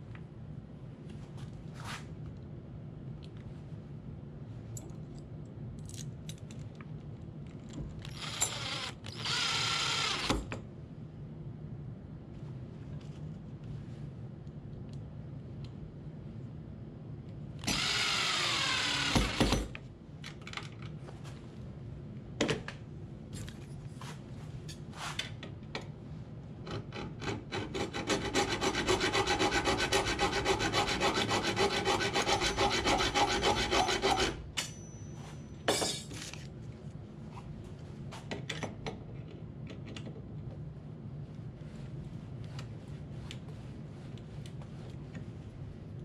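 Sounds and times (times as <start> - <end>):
drill-driver whirring: 8.0 - 10.4, 17.6 - 19.6.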